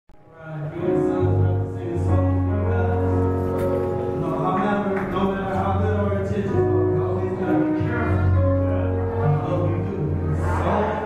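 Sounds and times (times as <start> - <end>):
men singing in harmony: 10.2 - 11.0.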